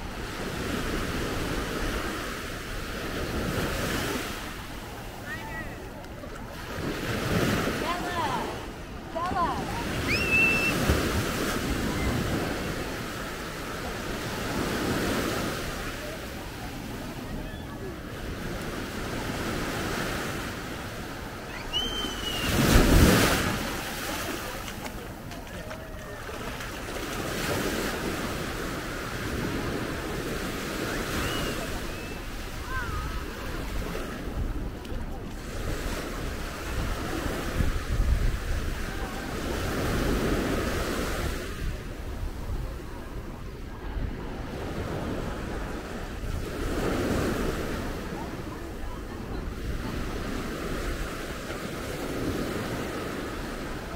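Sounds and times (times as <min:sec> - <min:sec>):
waves washing onto beach: 0:00.0 - 0:53.9
wind on microphone: 0:21.0 - 0:51.2.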